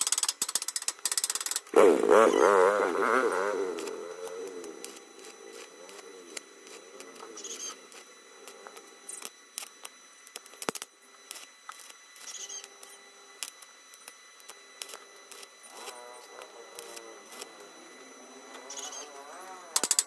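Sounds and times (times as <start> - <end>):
welding arc crackling: 0.0 - 20.0
sharp clicks: 19.8 - 20.0.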